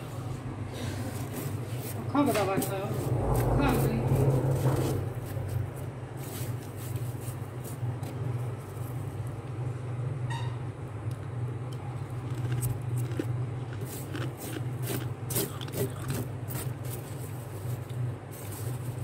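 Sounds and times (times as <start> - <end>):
steady low hum: 0.0 - 19.0
hand brushing over frost: 4.9 - 7.9.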